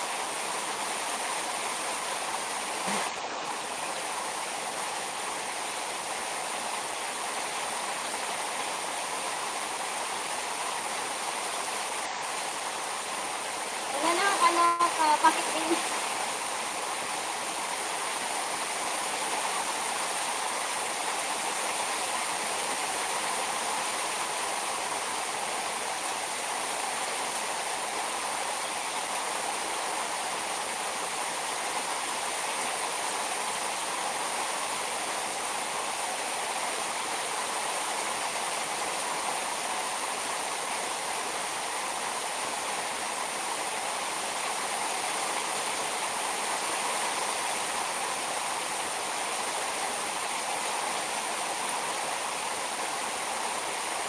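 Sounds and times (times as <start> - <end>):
heavy rain on mesh and car: 13.9 - 15.8.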